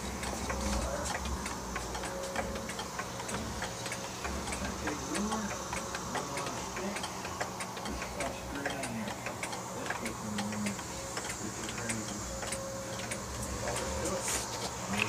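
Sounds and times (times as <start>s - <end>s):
clock ticking: 0.0s - 14.2s.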